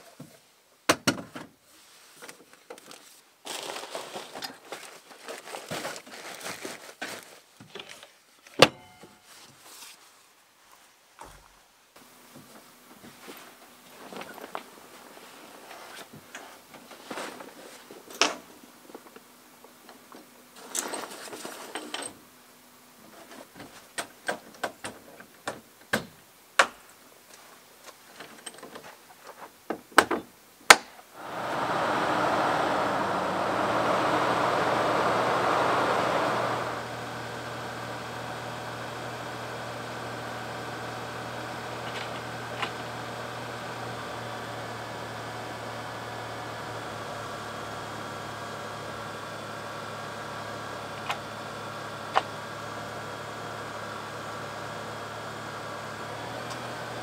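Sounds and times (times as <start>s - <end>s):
truck engine running: 31.2s - 57.0s.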